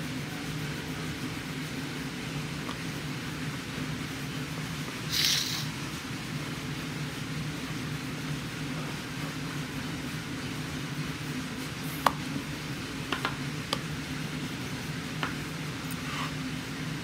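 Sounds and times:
wood knocking on wood: 13.1s - 13.8s.

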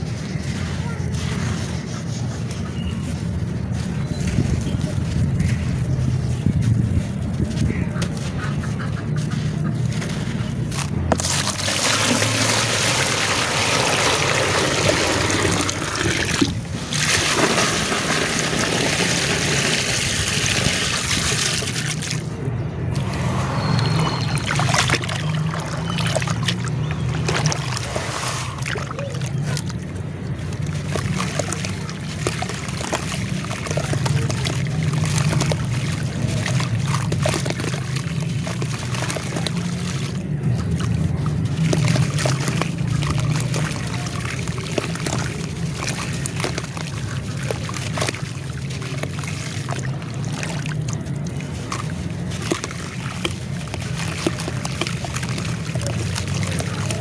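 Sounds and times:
water splashing and sloshing: 0.0s - 57.0s
wet crackling and crumbling: 24.2s - 57.0s.

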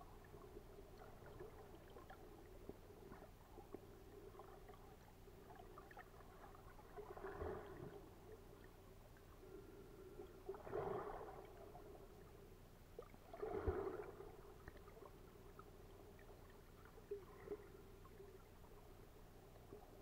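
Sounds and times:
muffled underwater sounds: 0.0s - 20.0s
steady low hum: 0.0s - 20.0s
water swishing surges: 10.4s - 12.3s, 13.0s - 15.2s.

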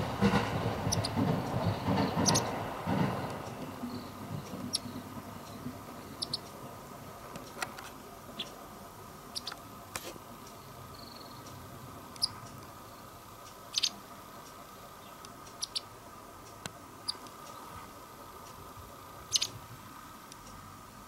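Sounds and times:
faint steady hum: 0.0s - 21.0s
bird chirping calls: 0.9s - 2.6s, 3.8s - 6.5s, 9.3s - 9.6s, 12.2s - 12.4s, 13.7s - 14.0s, 15.0s - 15.9s, 19.3s - 19.6s.

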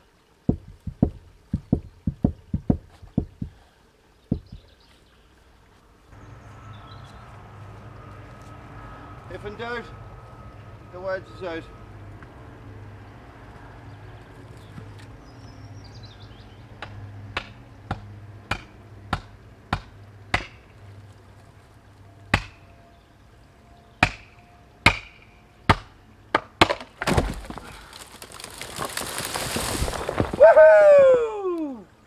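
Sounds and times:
axe striking a metal wedge: 18.5s - 20.6s, 22.3s - 22.6s, 24.0s - 25.9s
tree trunk crashing down: 26.6s - 31.2s.

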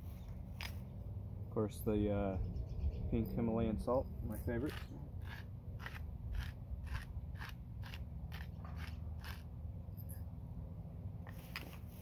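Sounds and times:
salt grinder crunching: 4.7s - 9.5s.

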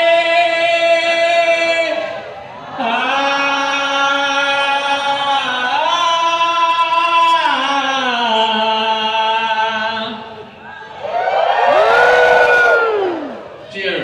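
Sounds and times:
crowd crying out a toast: 10.6s - 13.8s.

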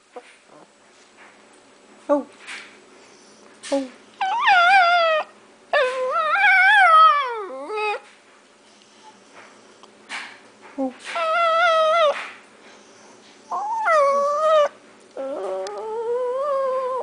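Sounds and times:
small dog howling: 4.2s - 8.0s, 11.2s - 12.2s, 13.5s - 17.0s.

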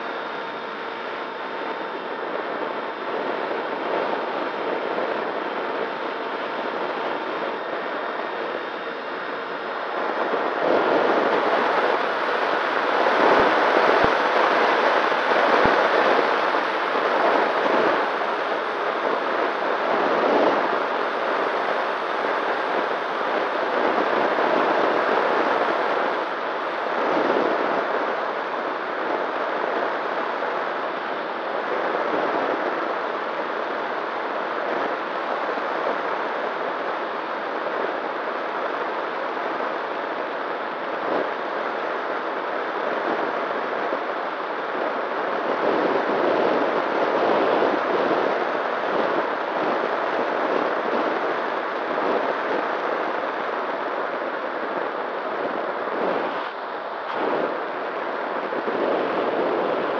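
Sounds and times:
motor and propeller hum: 0.0s - 36.8s
air rushing over microphone: 55.4s - 59.9s.

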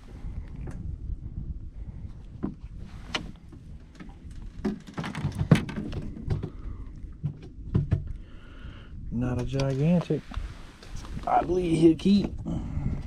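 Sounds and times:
handling clicks and knocks: 4.0s - 6.6s.

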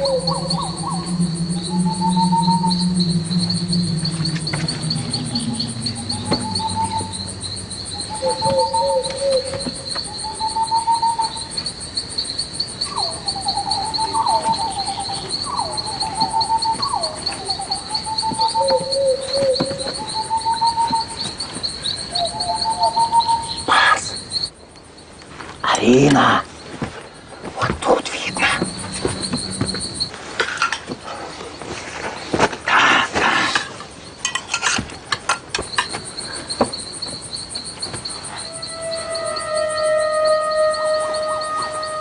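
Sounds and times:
low drone: 0.0s - 9.9s, 27.9s - 30.2s
bird chirping: 0.0s - 25.1s, 27.6s - 30.1s
crickets trilling: 0.0s - 42.0s.

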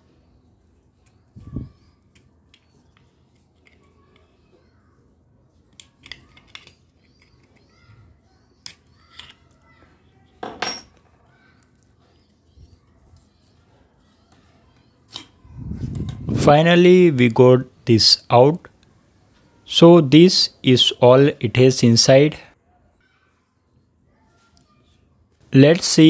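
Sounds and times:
plastic clicks and scrapes: 5.6s - 7.7s.

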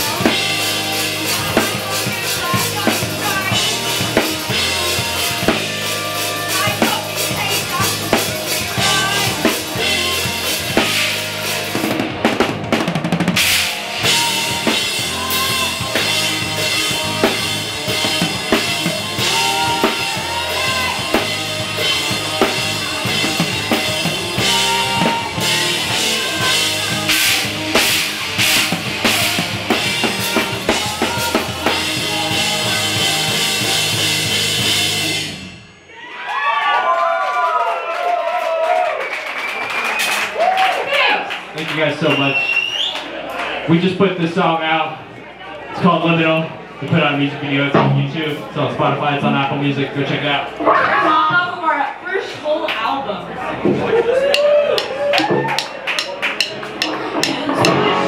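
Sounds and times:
drum kit beat: 0.0s - 35.9s, 53.7s - 58.0s
rock band playing: 0.0s - 37.0s, 53.5s - 58.0s.

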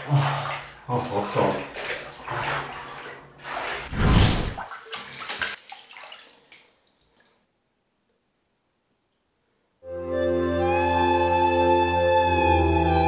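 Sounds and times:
water splash: 0.0s - 7.4s
water sloshing in bathtub: 0.0s - 7.5s.

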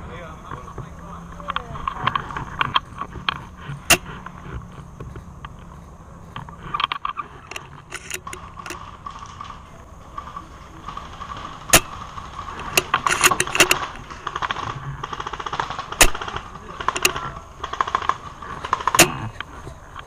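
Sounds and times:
faint steady whine: 0.0s - 20.0s
gun handling clicks: 6.4s - 8.8s, 12.6s - 14.0s, 16.9s - 17.2s
airsoft gun shots: 10.9s - 19.4s.

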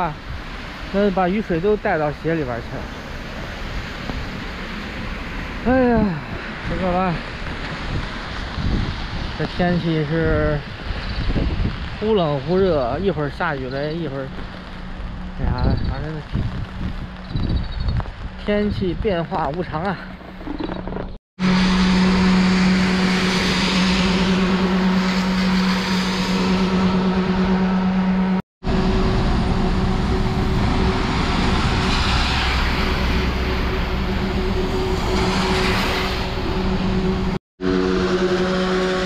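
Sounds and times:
vehicle motor hum: 20.1s - 39.0s.

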